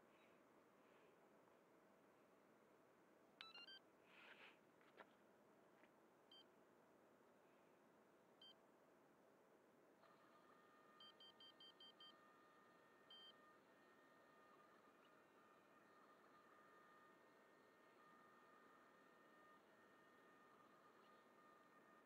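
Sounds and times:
faint electronic beeps: 3.4 - 3.9, 10.4 - 22.0
faint steady tone: 6.2 - 22.0.

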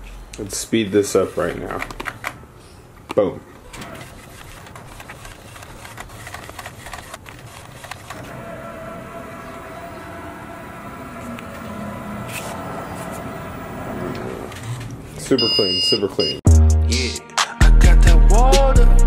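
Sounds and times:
printer mechanical hum: 3.6 - 16.2.

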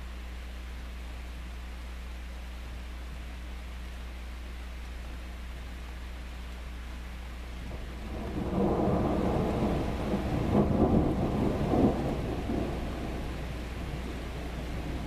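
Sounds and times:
thunder rumbling: 7.6 - 15.0.

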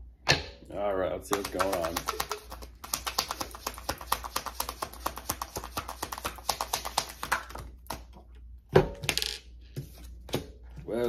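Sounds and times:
cards being shuffled: 1.3 - 8.2.

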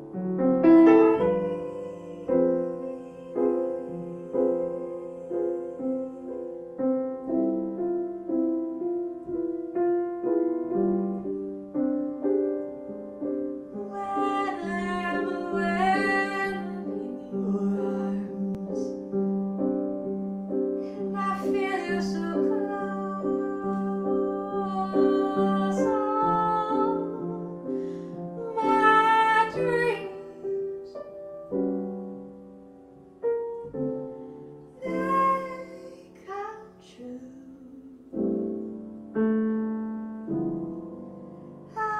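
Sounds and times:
piano chords: 0.0 - 41.9
woman singing: 0.6 - 7.6, 13.7 - 19.2, 20.9 - 31.0, 34.7 - 38.5.

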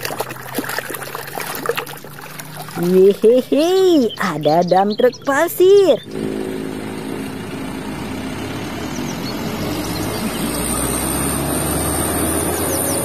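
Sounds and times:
truck engine drone: 0.0 - 13.0
tyre noise on road: 5.9 - 13.0.

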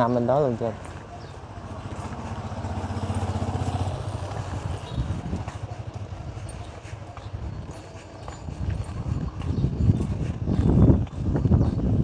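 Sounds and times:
motorbike engine passing: 1.1 - 6.7.

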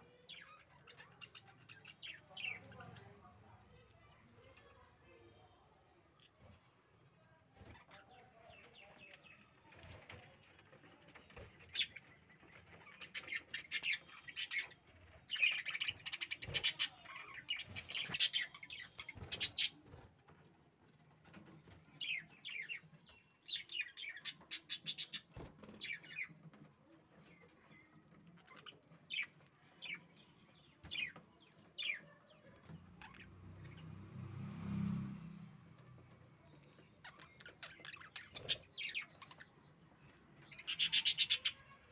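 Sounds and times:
budgerigars chirping and chattering: 0.1 - 3.1, 11.5 - 19.8, 22.0 - 26.5, 36.4 - 41.9.

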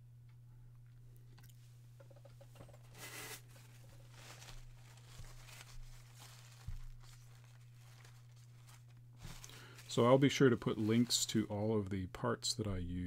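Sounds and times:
paper tissue rustling and crumpling: 2.8 - 11.7.

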